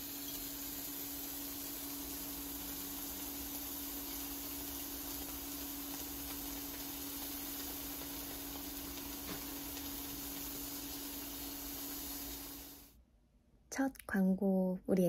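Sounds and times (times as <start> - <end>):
beef sizzling in a frying pan: 0.0 - 12.9.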